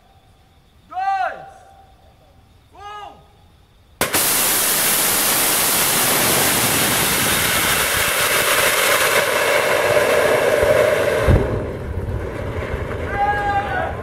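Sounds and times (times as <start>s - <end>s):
rocket motor hissing: 4.0s - 12.8s
rough rumble of flame: 4.0s - 14.0s.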